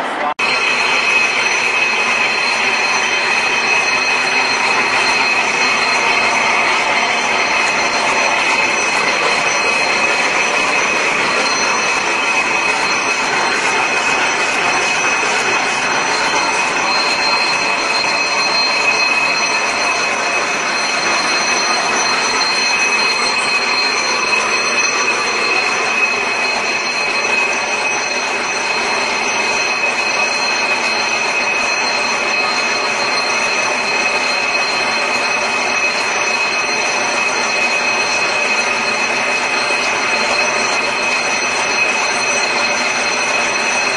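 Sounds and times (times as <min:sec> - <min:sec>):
high-pitched whine: 0:00.0 - 0:43.9
machine running loudly: 0:00.0 - 0:43.9.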